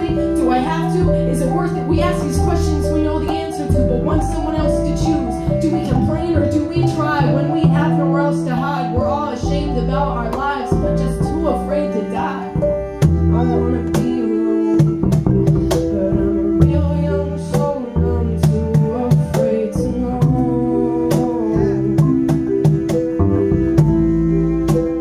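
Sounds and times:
mallet keyboard: 0.0 - 25.0
upright bass low notes: 0.0 - 25.0
flute: 12.7 - 25.0.

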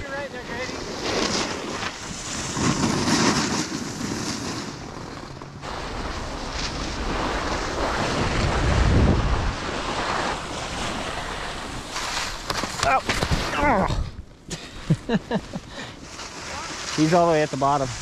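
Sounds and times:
skis sliding on snow: 0.0 - 13.6, 14.5 - 18.0
wind rushing over microphone: 5.6 - 14.4.

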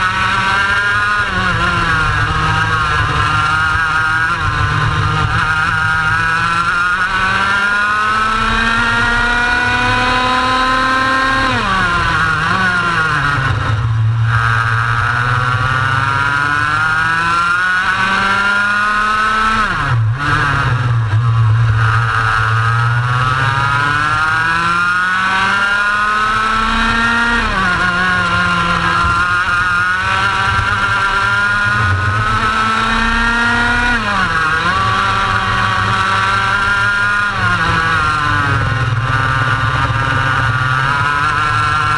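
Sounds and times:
racing kart engine: 0.0 - 41.9.

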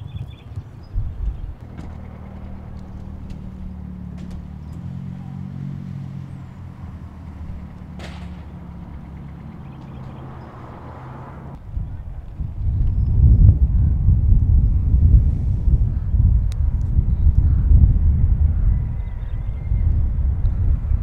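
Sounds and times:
wind buffeting microphone: 0.0 - 5.1, 6.2 - 21.0
engine idling: 1.0 - 10.6.

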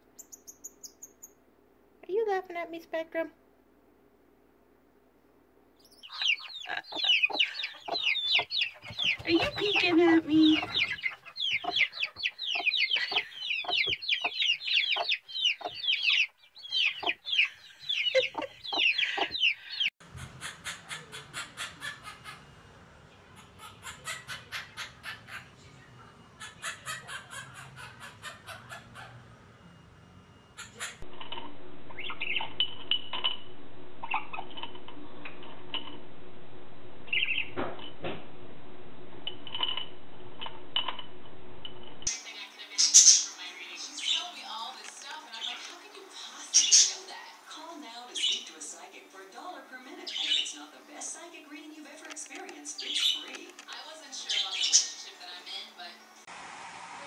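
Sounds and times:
budgerigar chirping: 5.8 - 19.9, 42.8 - 43.4
chicks peeping: 5.8 - 19.9
hen clucking: 5.9 - 22.5, 23.3 - 25.6, 26.4 - 29.2, 30.6 - 31.1.

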